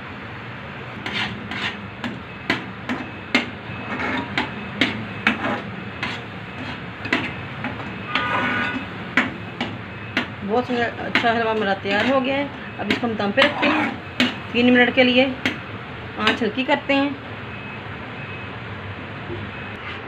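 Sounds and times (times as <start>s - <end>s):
metal spoon scraping metal pan: 1.0s - 3.0s, 3.8s - 9.0s, 10.6s - 14.8s.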